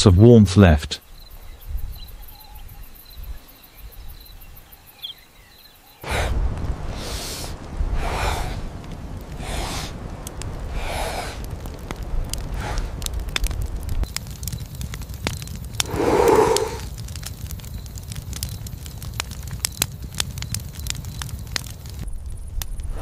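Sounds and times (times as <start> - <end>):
insects chirping: 1.0 - 13.0, 14.0 - 22.6
torch flame crackling and whooshing: 6.0 - 23.0.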